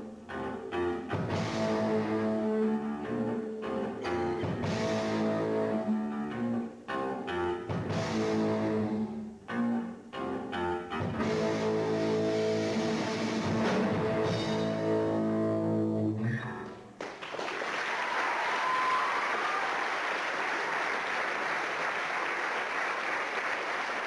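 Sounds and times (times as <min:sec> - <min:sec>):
audience applause: 0:17.0 - 0:24.0.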